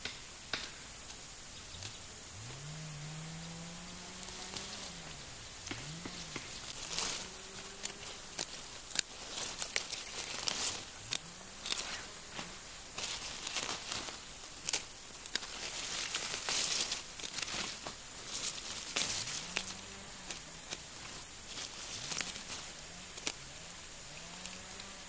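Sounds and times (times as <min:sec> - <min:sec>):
leaves rustling: 0:00.0 - 0:25.0
roots tearing: 0:01.0 - 0:25.0
dirt being knocked off: 0:04.1 - 0:08.5.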